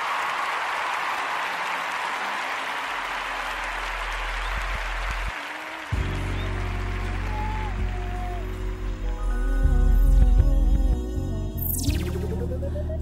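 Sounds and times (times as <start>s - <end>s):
crowd applause: 0.0s - 9.3s.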